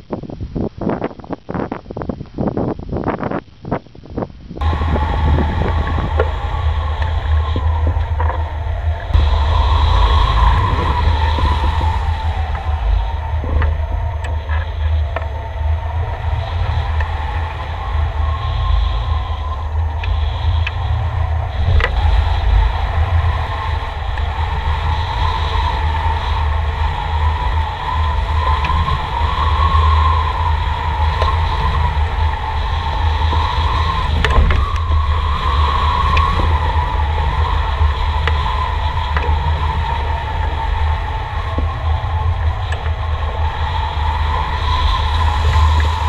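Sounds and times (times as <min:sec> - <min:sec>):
wind buffeting camera: 0:00.0 - 0:46.0
wavering whistle: 0:04.6 - 0:46.0.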